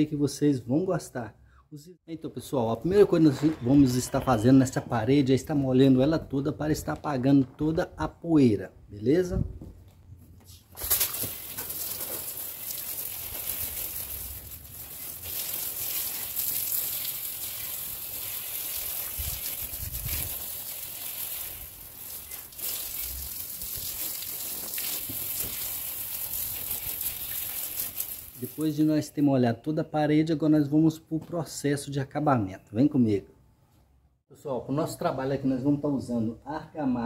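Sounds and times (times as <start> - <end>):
water spraying on brick wall: 10.7 - 28.8.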